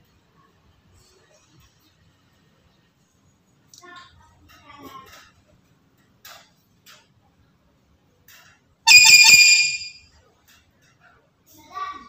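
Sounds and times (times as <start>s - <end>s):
parrot giving shrill call: 8.9s - 10.0s.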